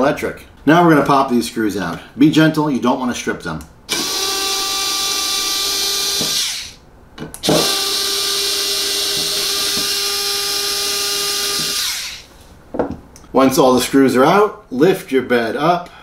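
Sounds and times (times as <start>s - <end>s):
cordless screwdriver motor whine: 3.9s - 6.8s, 7.4s - 12.3s.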